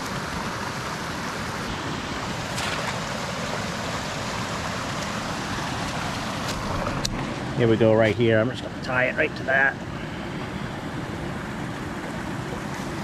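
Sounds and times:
stream water rushing: 0:00.0 - 0:13.0.

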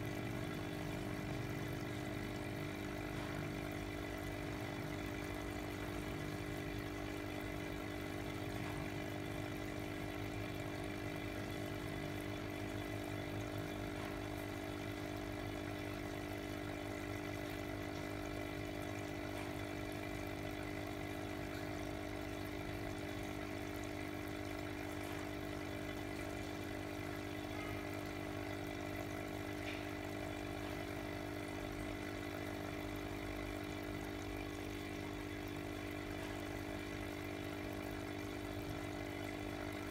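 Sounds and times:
aquarium pump humming: 0:00.0 - 0:39.9.

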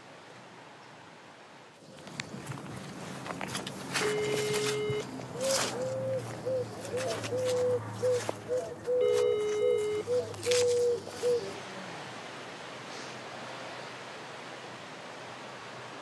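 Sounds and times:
phone ringback tone: 0:04.0 - 0:05.1, 0:08.9 - 0:10.8
dove cooing: 0:04.0 - 0:11.7
steady hiss: 0:10.8 - 0:16.0.

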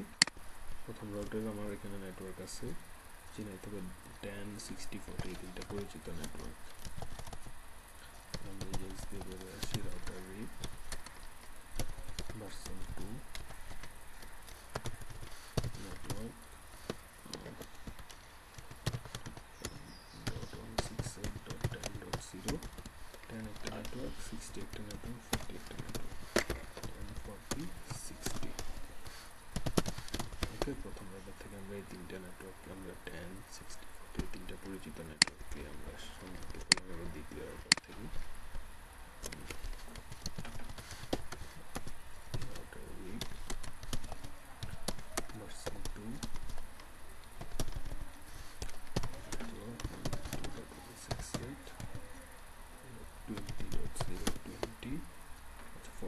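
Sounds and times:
computer keyboard typing: 0:04.6 - 0:07.6, 0:08.3 - 0:32.0, 0:34.2 - 0:38.2, 0:39.2 - 0:46.6, 0:47.2 - 0:52.2, 0:53.3 - 0:54.9.

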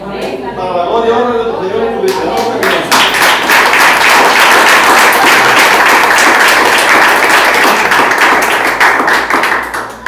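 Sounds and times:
crowd applauding: 0:02.1 - 0:10.0.

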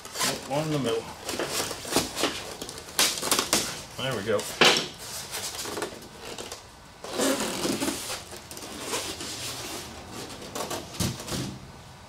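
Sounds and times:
foam tray rubbing and scraping: 0:07.0 - 0:11.1.

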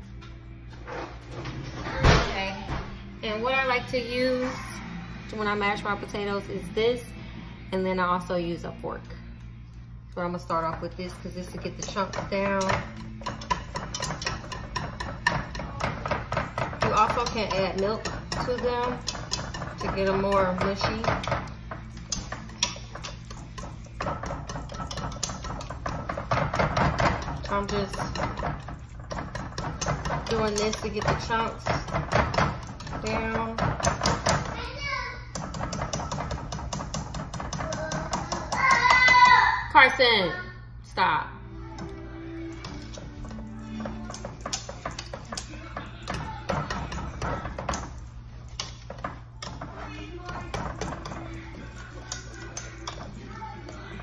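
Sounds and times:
whisk scraping a metal pot: 0:10.5 - 0:39.5, 0:41.8 - 0:54.0.

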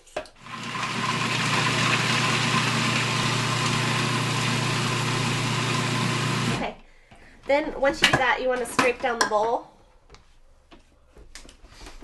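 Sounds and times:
food processor motor humming: 0:00.4 - 0:06.8.

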